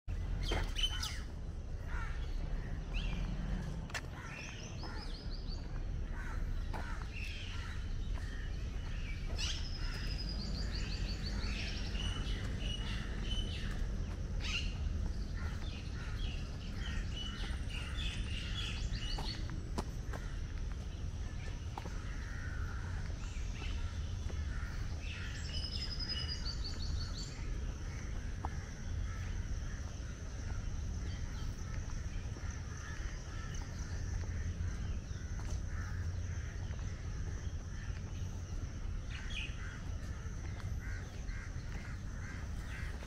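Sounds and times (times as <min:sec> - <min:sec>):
birds chirping and trilling: 0:00.1 - 0:43.0
low outdoor rumble: 0:00.1 - 0:43.0.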